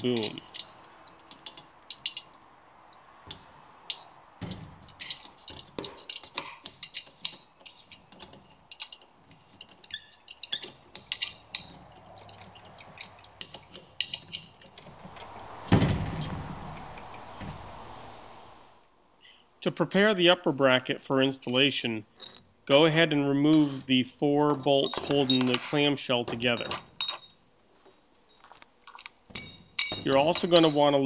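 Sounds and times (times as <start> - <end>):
ratcheting hand driver clicking: 0.0 - 2.5, 3.3 - 14.9
loud thump: 15.0 - 18.0.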